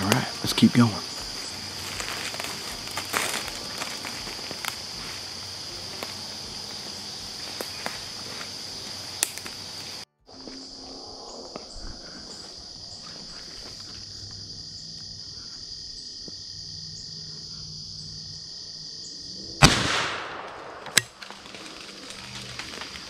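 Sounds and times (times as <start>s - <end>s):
high-pitched insect chorus: 0.0s - 23.0s
shotgun shot: 19.6s - 21.2s.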